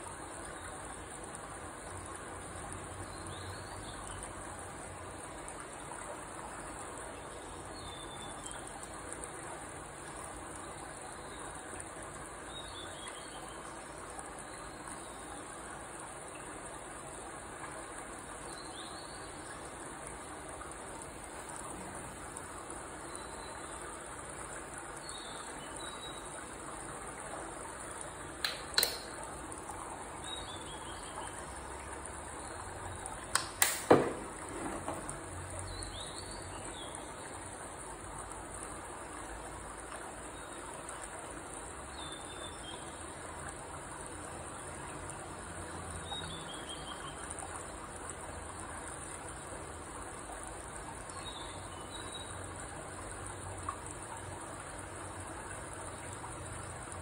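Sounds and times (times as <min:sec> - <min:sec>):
background hiss: 0:00.0 - 0:57.0
sharp clicks: 0:28.4 - 0:29.2, 0:33.3 - 0:34.1.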